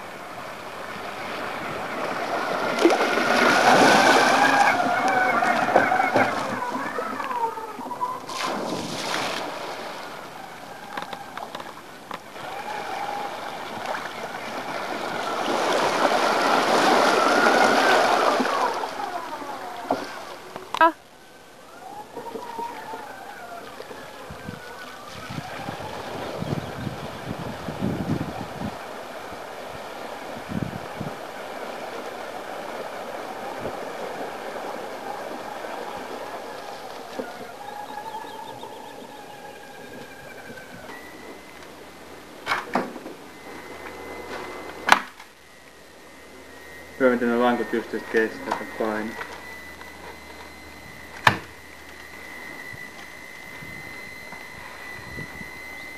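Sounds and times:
water splashing: 0.0s - 21.1s
electric motors whining: 0.0s - 55.9s
loud splash into water: 8.3s - 10.1s.

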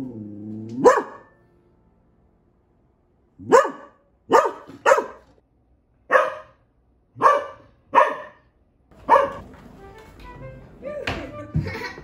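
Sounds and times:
puppy barking: 0.8s - 1.4s, 3.4s - 5.4s, 6.1s - 6.6s, 7.2s - 9.4s.

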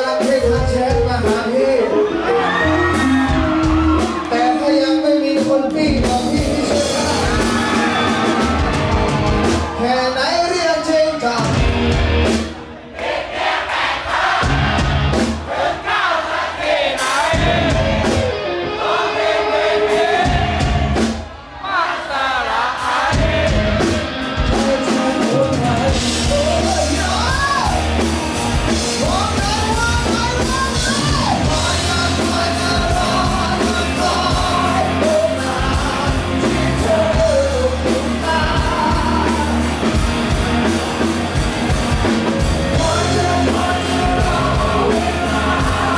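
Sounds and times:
male singer: 0.0s - 8.7s, 22.1s - 27.8s, 29.0s - 40.0s, 42.6s - 45.9s
electric guitars: 0.0s - 12.8s, 17.2s - 21.4s, 23.0s - 45.9s
drums: 0.0s - 45.9s.

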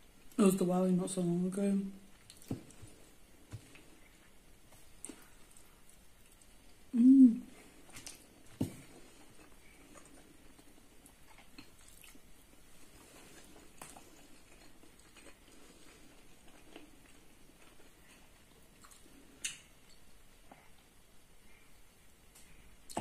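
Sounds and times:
person chewing: 2.1s - 6.9s, 7.5s - 21.0s.

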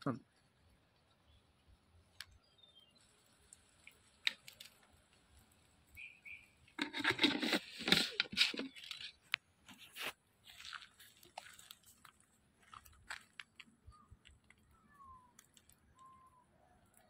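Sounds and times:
dry leaves crunching underfoot: 7.0s - 13.6s.

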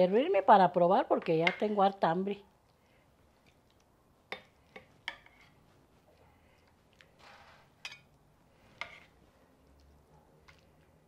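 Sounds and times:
soft wet scrape: 5.2s - 7.8s, 8.4s - 11.0s.

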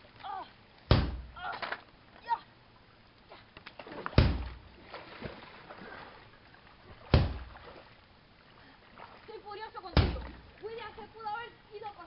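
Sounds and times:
loud sharp punch impacts: 0.9s - 1.4s, 4.2s - 4.6s, 7.1s - 7.5s
water sloshing around legs: 3.2s - 11.9s.

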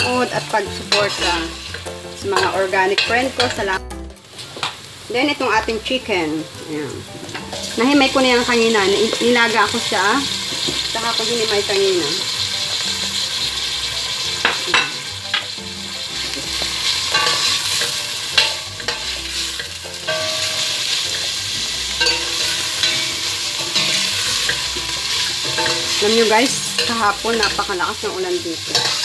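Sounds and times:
food sizzling in hot oil: 0.0s - 29.0s
metal ladle scraping pot: 16.5s - 27.8s.

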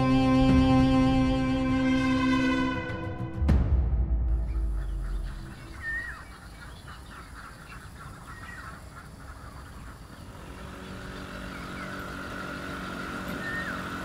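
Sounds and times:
birds chirping: 4.3s - 14.0s
motorcycle engine approaching: 9.2s - 14.0s.

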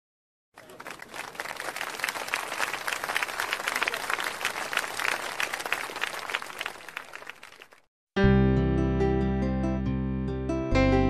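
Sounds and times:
crowd applause: 0.6s - 7.9s.

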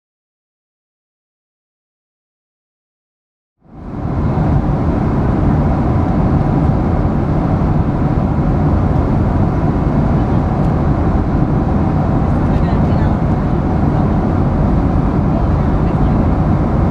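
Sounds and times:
airliner cabin engine drone: 3.6s - 16.9s.

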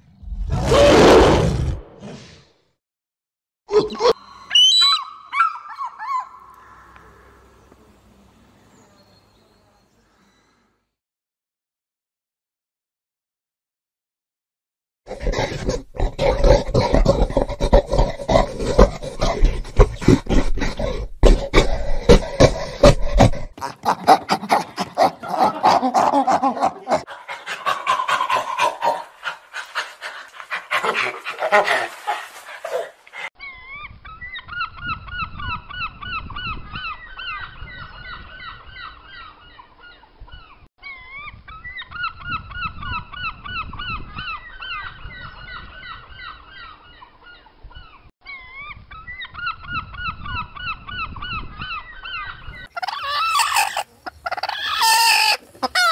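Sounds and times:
orangutan calls: 3.7s - 7.7s, 51.6s - 55.9s.

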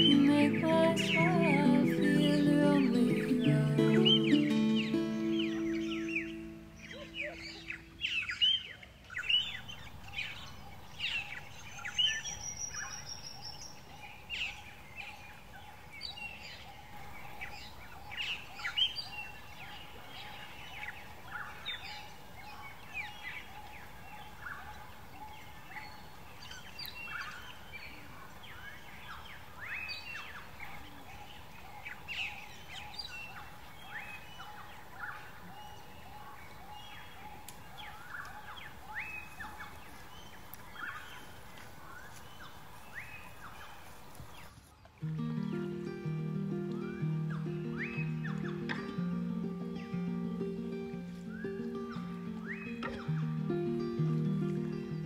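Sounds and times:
high bird trill: 0.0s - 8.4s, 45.1s - 55.0s
birds chirping and whistling: 3.4s - 8.6s, 45.2s - 55.0s
faint steady drone: 45.0s - 55.0s.

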